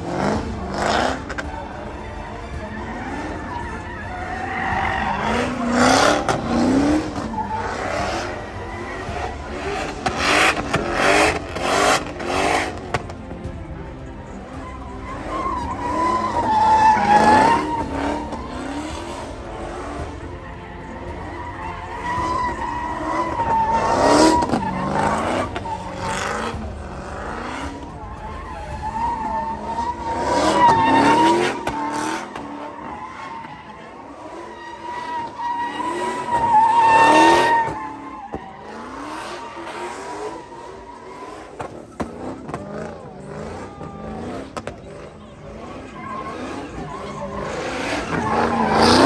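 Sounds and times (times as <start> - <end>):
car engine revving: 0.0 - 49.0
tyres squealing on asphalt: 0.0 - 49.0.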